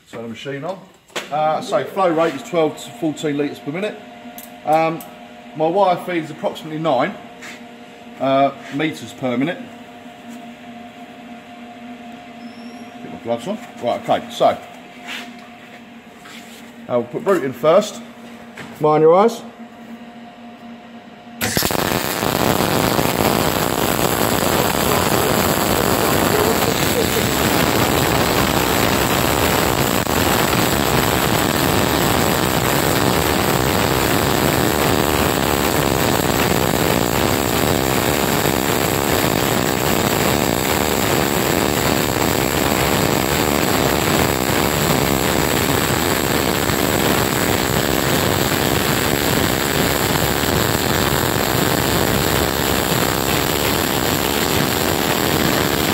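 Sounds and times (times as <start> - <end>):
welding arc: 21.4 - 55.9.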